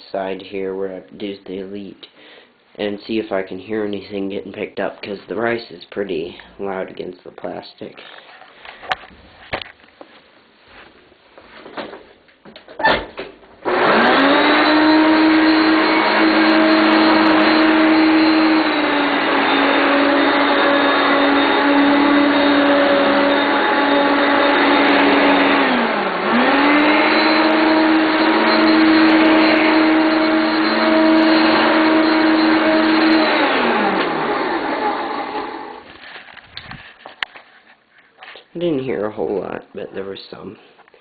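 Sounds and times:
vacuum cleaner running: 13.6s - 35.9s.

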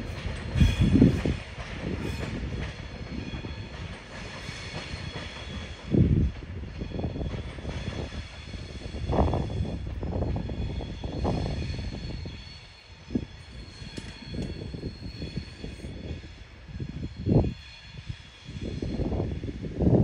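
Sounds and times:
train rumbling by: 0.0s - 20.0s.

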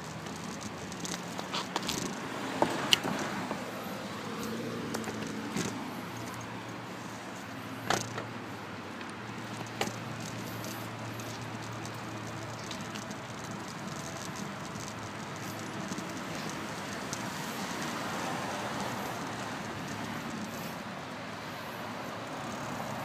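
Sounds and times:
bike knocks and clicks over bumps: 0.0s - 3.6s, 4.5s - 6.5s, 7.8s - 8.4s, 9.0s - 20.6s
bicycle rolling: 0.0s - 23.0s.

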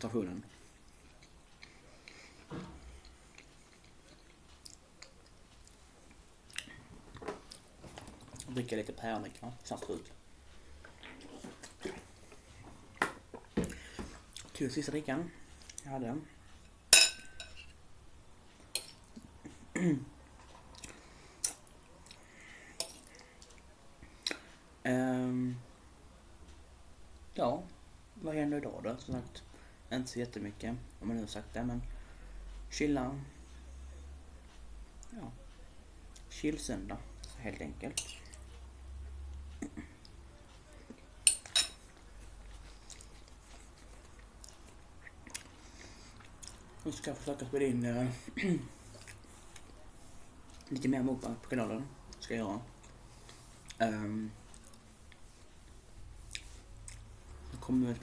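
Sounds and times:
chewing: 0.4s - 8.6s, 20.4s - 24.5s, 41.8s - 46.9s, 48.8s - 50.9s, 54.4s - 55.6s, 56.2s - 57.6s
fork clinking against plate: 17.0s - 17.7s.

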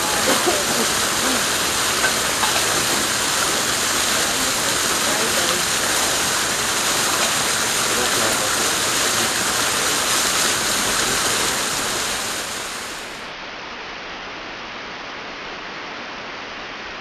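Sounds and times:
running water rushing: 0.0s - 13.3s.

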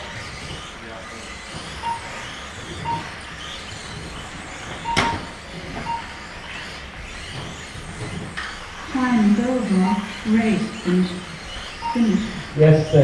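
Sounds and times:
small electric cars whirring: 0.0s - 13.0s
short electronic beeps: 1.7s - 3.2s, 4.8s - 6.6s, 9.6s - 13.0s.

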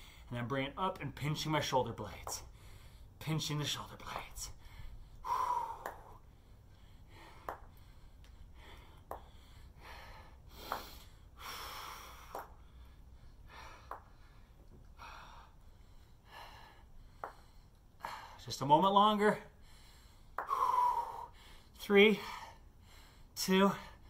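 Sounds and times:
man breathing hard: 0.0s - 0.3s, 2.5s - 3.2s, 4.5s - 18.4s, 19.5s - 24.0s.

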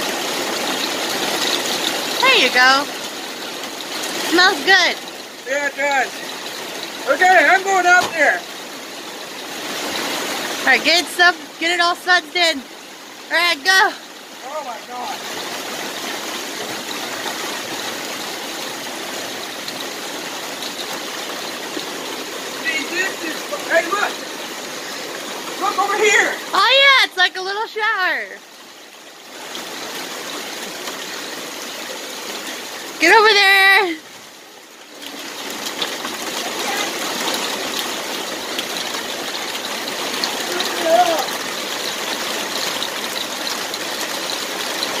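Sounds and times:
heavy rain on pavement: 0.0s - 45.0s
water pouring off roof splashing: 0.0s - 45.0s.

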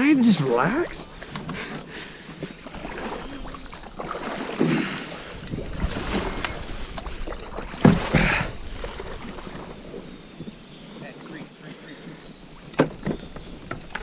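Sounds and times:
reeds scraping along hull: 0.0s - 14.0s
paddle strokes in water: 0.5s - 14.0s
wind on microphone: 2.7s - 11.0s, 12.2s - 14.0s.

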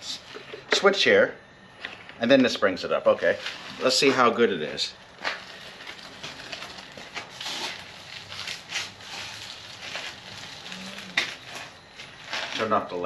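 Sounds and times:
footsteps shuffling on leaves: 5.3s - 11.6s.

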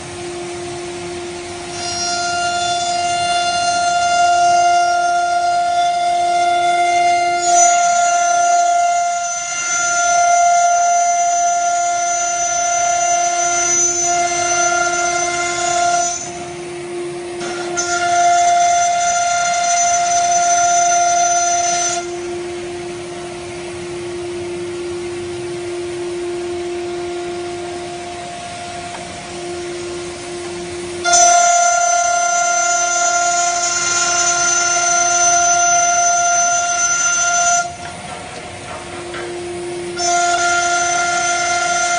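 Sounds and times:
higher whine: 0.0s - 41.9s
router spindle whine: 0.0s - 41.9s.

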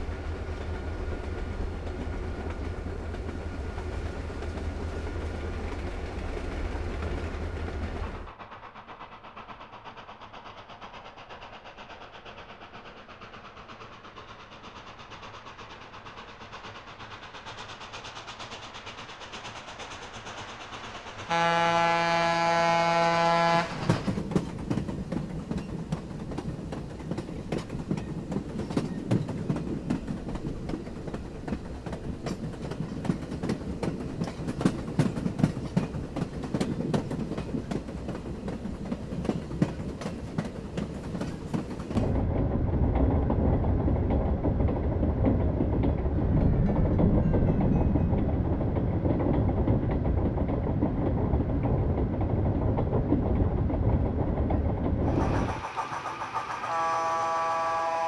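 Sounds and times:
model train wheels rumbling: 0.0s - 58.0s
model train wheels clicking: 0.4s - 42.2s, 51.6s - 57.9s
train horn: 21.3s - 24.0s, 56.2s - 58.0s.

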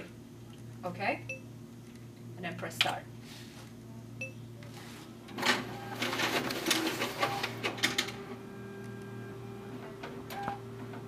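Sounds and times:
copier humming: 3.0s - 11.0s
document feeder clicks and whirs: 4.6s - 11.0s.

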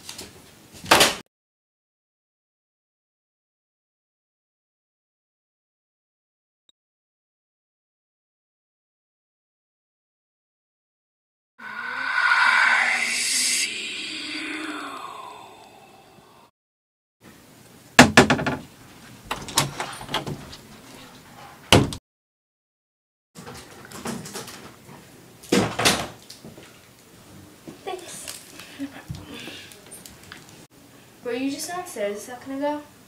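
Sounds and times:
cupboard doors knocking and banging: 18.0s - 18.7s, 21.7s - 22.0s.

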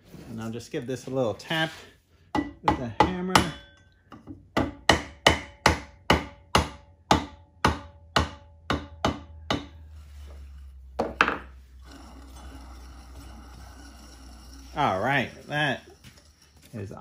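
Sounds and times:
hammer tapping metal: 2.3s - 9.8s
low steady hum: 7.0s - 17.0s.

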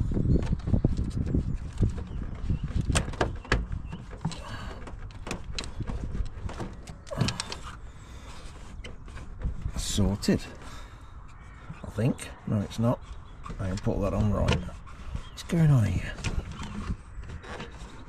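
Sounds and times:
rubbery squeaks: 0.0s - 18.0s
small clicks and knocks: 0.2s - 9.7s.

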